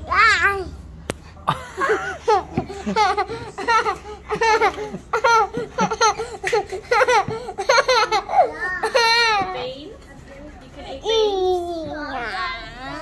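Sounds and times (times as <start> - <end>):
child laughing: 1.8 - 9.4.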